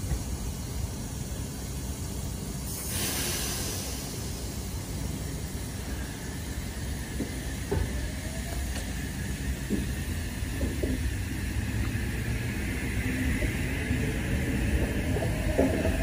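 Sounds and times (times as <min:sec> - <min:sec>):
compressed air hissing: 0:00.3 - 0:07.7
steady low rumble: 0:03.9 - 0:16.0.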